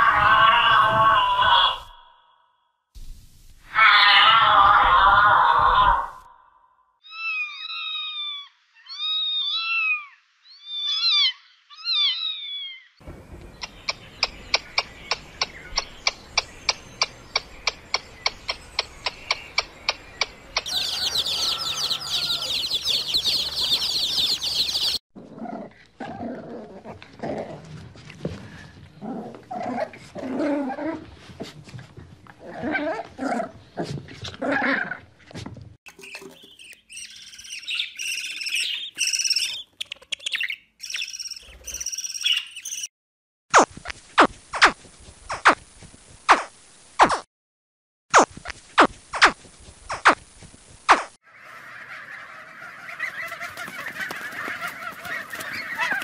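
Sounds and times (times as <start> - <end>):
chicks peeping: 13.6 - 25.0, 51.4 - 56.0
yelping calls: 18.4 - 25.0, 36.0 - 42.9, 51.3 - 56.0
parrot chicks squawking: 18.5 - 25.0, 36.0 - 42.9, 51.3 - 56.0
sharp animal calls: 51.3 - 56.0.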